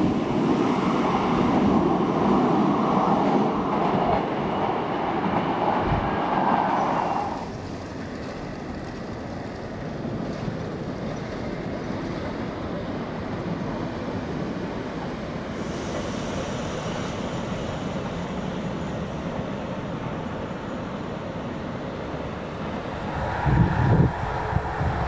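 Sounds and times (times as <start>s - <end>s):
electric train rumbling: 0.0s - 25.0s
train hissy rush: 5.8s - 7.6s, 15.3s - 20.8s, 22.8s - 25.0s.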